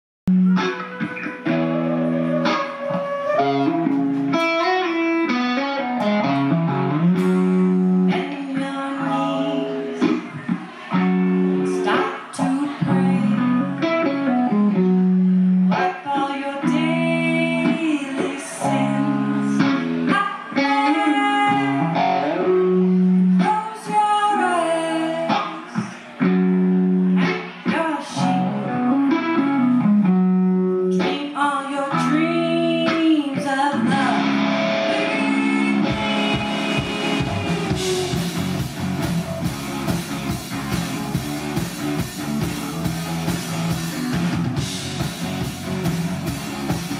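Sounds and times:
bass guitar: 0.3 - 23.7, 24.4 - 31.2, 31.8 - 46.9
clean electric guitar: 0.3 - 46.9
woman singing: 8.0 - 10.4, 11.6 - 14.1, 15.7 - 22.5, 23.3 - 26.0, 27.6 - 28.8, 30.9 - 38.3
drum kit and cymbals: 35.9 - 46.9.

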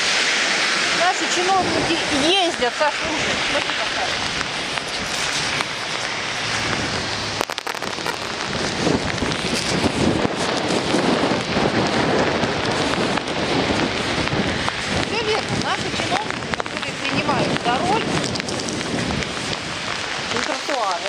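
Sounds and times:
rain falling on wet ground: 0.0 - 21.0
sharp clicks: 7.4 - 8.5.

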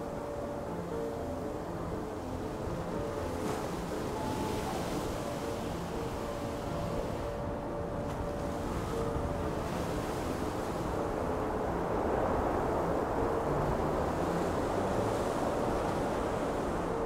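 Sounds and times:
deep continuous rumble: 0.0 - 17.0
wind and sea rushing: 0.0 - 17.0.

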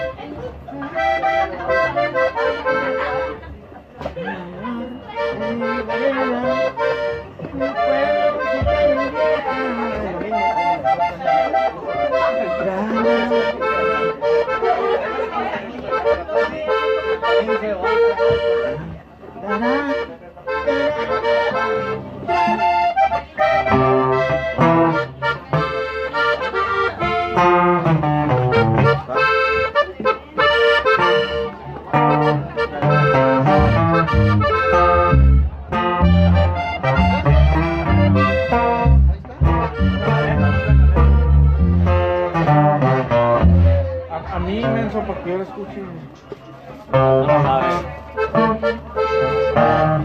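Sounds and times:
accordion melody: 0.0 - 50.0
bass line: 23.4 - 29.6, 30.4 - 45.0, 47.0 - 50.0.

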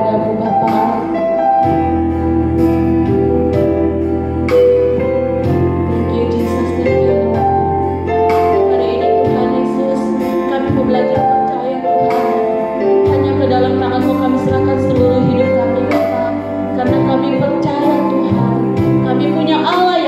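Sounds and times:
instrumental accompaniment: 0.0 - 20.0
woman singing into a microphone: 0.0 - 20.0.

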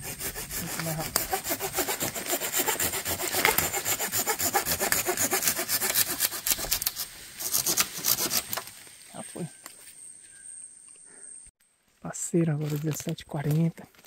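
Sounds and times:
hand saw cutting wood: 0.0 - 8.6.

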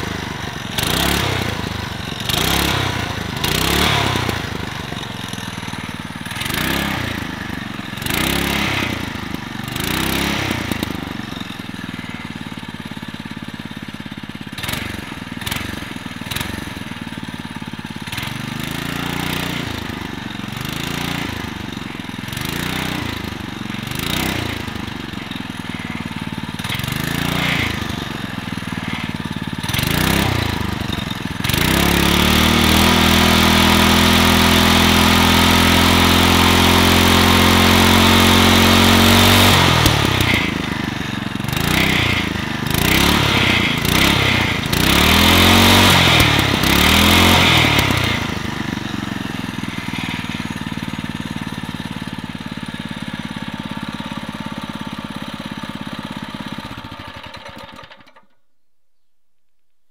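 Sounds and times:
small engine revving: 0.0 - 58.3.

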